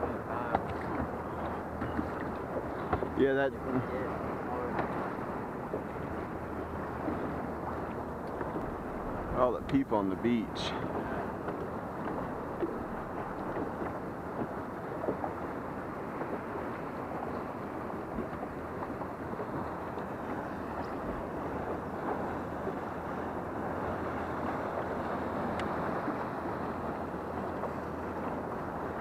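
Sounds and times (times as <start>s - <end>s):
water lapping against hull: 0.0s - 29.0s
wind noise on microphone: 0.0s - 29.0s.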